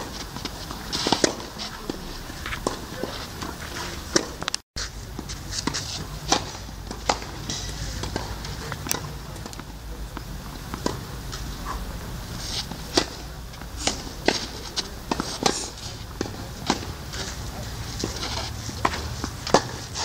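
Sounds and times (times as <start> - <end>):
racket hitting tennis ball: 0.0 - 4.5, 5.2 - 11.8, 12.4 - 20.0
shoes sliding on clay: 0.0 - 8.7, 10.7 - 20.0.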